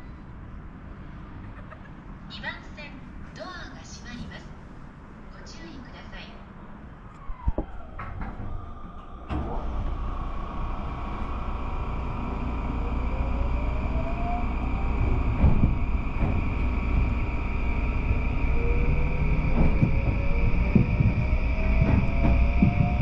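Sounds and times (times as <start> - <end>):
train rumble: 0.0 - 23.0
train doors shutting: 7.0 - 23.0
train motor whine: 7.1 - 23.0
train clunk moving off: 7.2 - 23.0.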